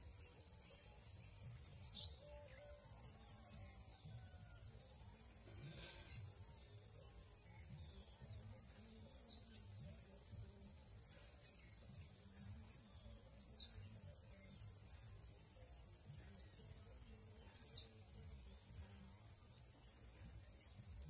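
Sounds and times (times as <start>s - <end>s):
bird chirping: 0.0s - 4.6s, 5.2s - 21.0s.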